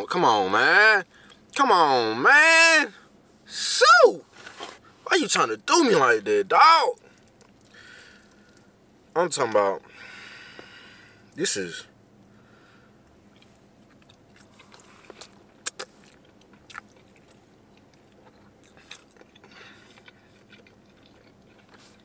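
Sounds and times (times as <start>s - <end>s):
person chewing food: 7.0s - 8.7s, 13.3s - 22.0s
mouth clicks and smacks: 13.4s - 17.1s.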